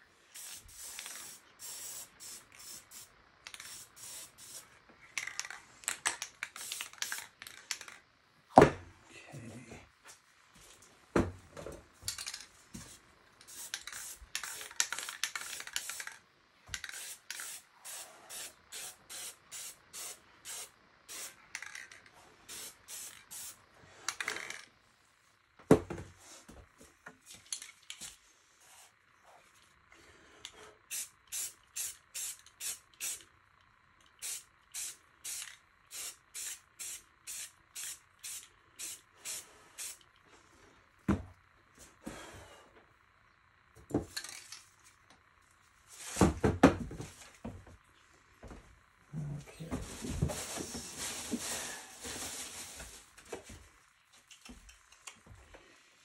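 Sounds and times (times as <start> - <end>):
spray paint can hissing: 0.3 - 4.7, 6.4 - 8.0, 13.4 - 21.8, 22.5 - 23.6, 30.9 - 33.2, 34.2 - 40.1.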